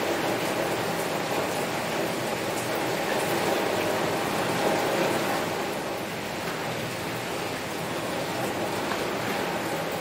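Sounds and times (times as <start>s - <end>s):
heavy rain on a window: 0.0s - 10.0s
faint taps of raindrops: 6.4s - 7.0s, 8.4s - 10.0s.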